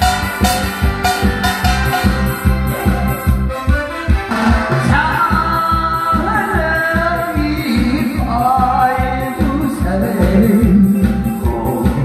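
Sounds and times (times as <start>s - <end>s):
backing track with steady beat: 0.0s - 12.0s
man singing through microphone: 4.8s - 12.0s.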